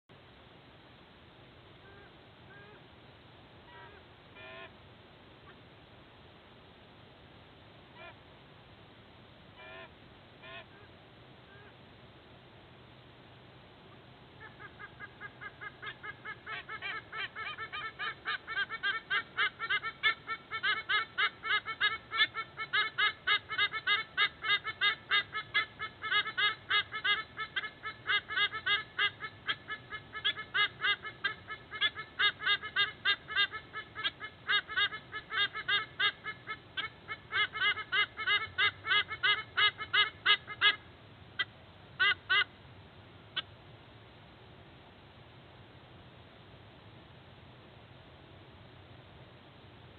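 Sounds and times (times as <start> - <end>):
sea eagle honking calls: 14.4 - 40.8.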